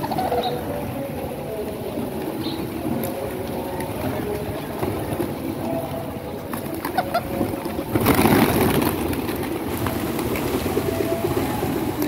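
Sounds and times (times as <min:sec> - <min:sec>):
low noise from pigeon flock: 0:00.0 - 0:12.0
pigeons wings flapping: 0:06.5 - 0:12.0.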